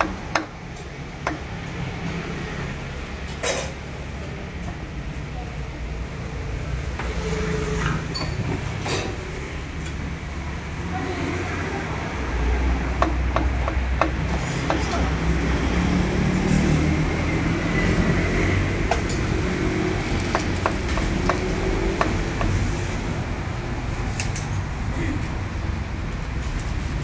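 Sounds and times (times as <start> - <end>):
cleaver chopping on wooden block: 0.0 - 0.5, 12.9 - 15.0, 20.3 - 22.6.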